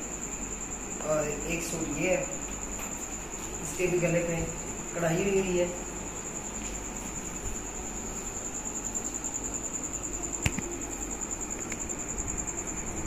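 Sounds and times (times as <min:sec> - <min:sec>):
cricket trilling: 0:00.0 - 0:13.0
sharp click: 0:10.4 - 0:10.8.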